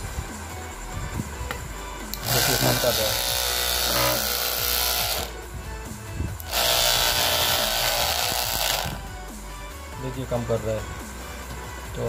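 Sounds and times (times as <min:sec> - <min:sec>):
background music: 0:00.0 - 0:12.0
small motor whisk whirring: 0:02.2 - 0:05.4, 0:06.4 - 0:09.0.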